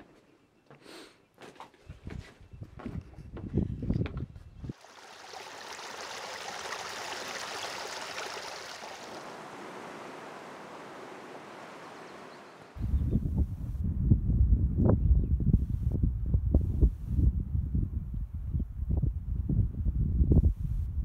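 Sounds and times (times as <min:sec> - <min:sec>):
brook trickling over rocks: 0:04.7 - 0:12.8.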